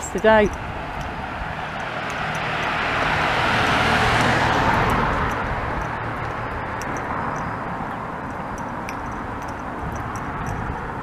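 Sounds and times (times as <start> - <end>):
car driving past: 1.2 - 7.8.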